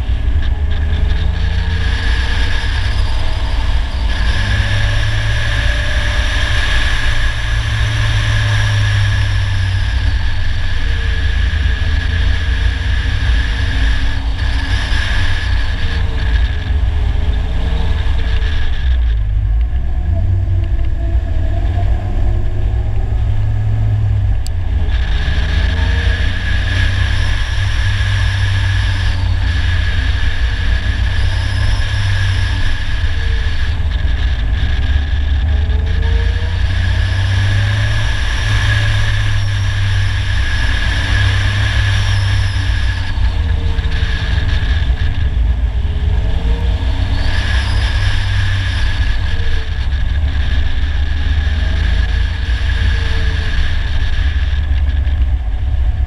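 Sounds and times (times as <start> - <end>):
car engine revving: 0.0 - 56.0
road noise: 0.0 - 56.0
wind rumble: 0.0 - 56.0.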